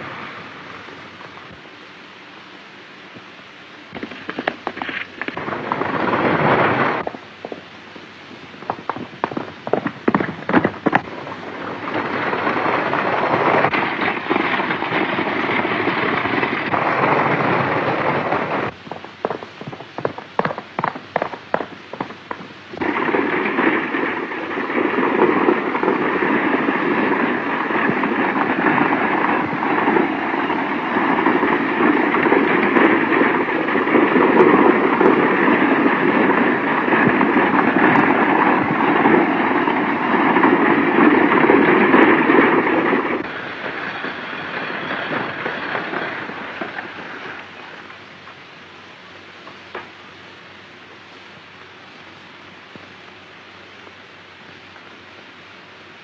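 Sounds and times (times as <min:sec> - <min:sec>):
galloping horses and stagecoach: 0:08.6 - 0:48.0.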